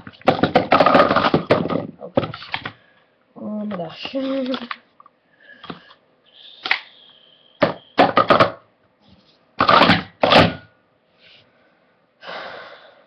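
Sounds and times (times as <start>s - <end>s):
plastic cups clattering: 0.0s - 2.8s, 7.6s - 8.6s, 9.6s - 10.6s.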